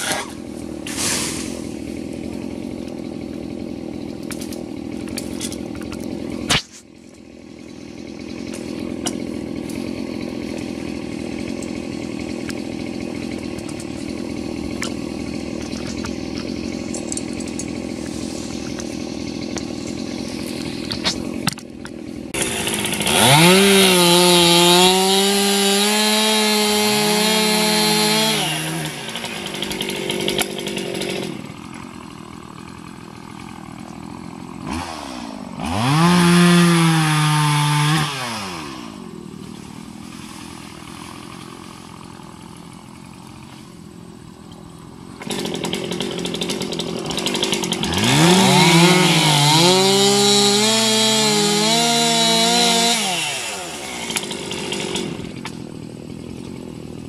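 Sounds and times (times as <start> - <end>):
chainsaw revving: 0.0 - 57.0.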